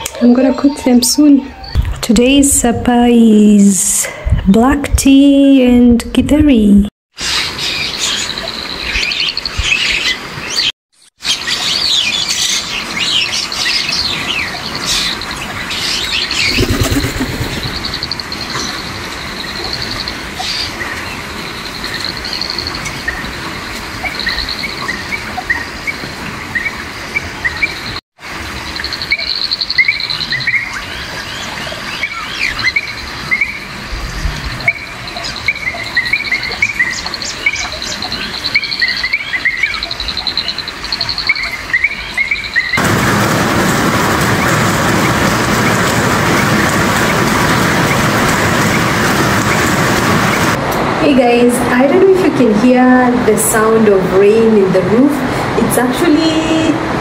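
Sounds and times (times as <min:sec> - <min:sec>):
birds chirping: 0:07.2 - 0:28.0, 0:28.6 - 0:42.8
light drizzly rain: 0:11.3 - 0:57.0.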